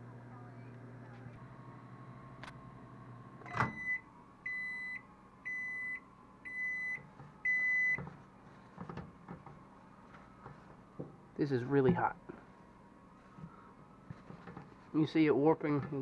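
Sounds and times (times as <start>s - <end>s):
microwave oven humming: 0.0s - 16.0s
microwave click: 2.3s - 4.7s.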